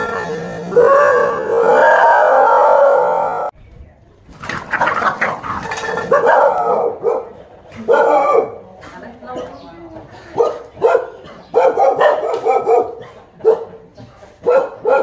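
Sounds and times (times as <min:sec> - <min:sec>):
dog barking: 0:06.1 - 0:08.6, 0:10.4 - 0:15.0.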